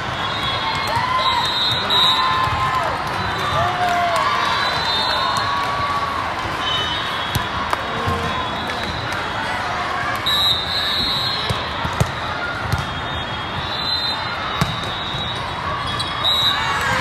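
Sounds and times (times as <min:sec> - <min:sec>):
crowd hubbub in a hall: 0:00.0 - 0:17.0
volleyballs thudding: 0:11.4 - 0:13.1, 0:14.6 - 0:15.4.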